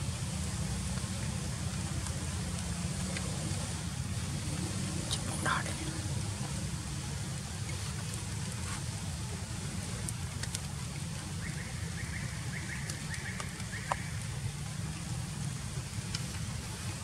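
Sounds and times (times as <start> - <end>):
low outdoor rumble: 0.0 - 17.0
light crackles and clicks: 0.8 - 3.7, 7.3 - 14.8, 15.8 - 17.0.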